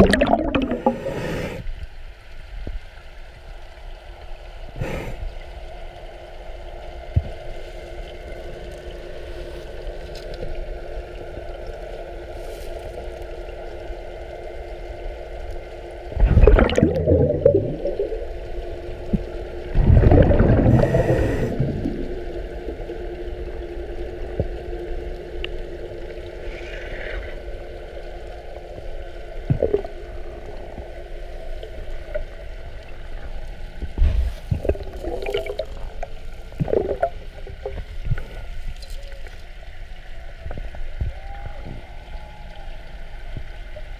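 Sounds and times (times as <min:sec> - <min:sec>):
bubbling exhaled breath: 0:00.0 - 0:01.7, 0:16.1 - 0:18.3, 0:19.6 - 0:22.3, 0:34.0 - 0:35.9
steady underwater hum: 0:00.0 - 0:43.9.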